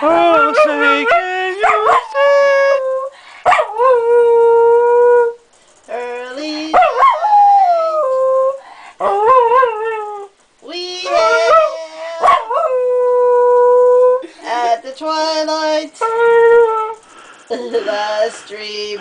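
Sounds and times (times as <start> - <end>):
dog howling: 0.0 - 5.4, 6.7 - 10.3, 11.0 - 14.2.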